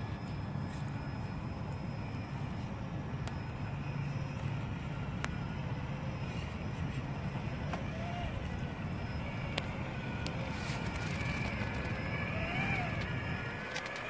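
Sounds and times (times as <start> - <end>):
toy crawler motor running: 3.3 - 14.0.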